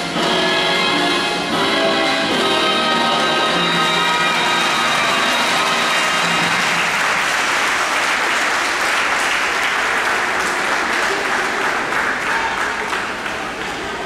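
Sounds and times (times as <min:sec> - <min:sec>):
music: 0:00.0 - 0:07.2
audience applauding: 0:02.9 - 0:14.0.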